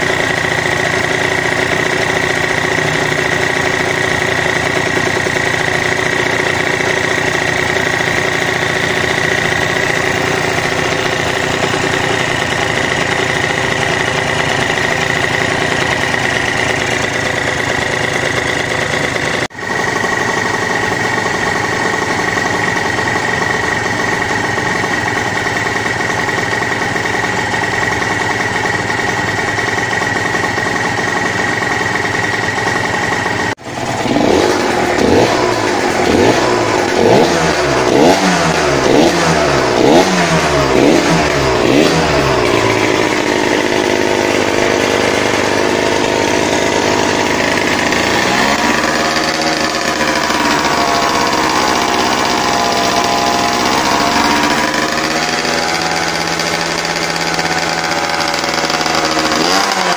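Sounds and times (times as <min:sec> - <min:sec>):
two-stroke engine idling and revving: 0:00.0 - 0:59.9.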